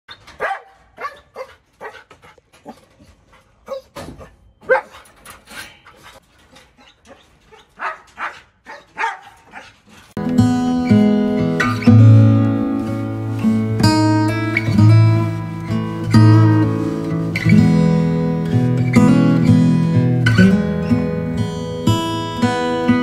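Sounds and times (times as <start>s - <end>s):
dogs barking: 0.3s - 10.2s.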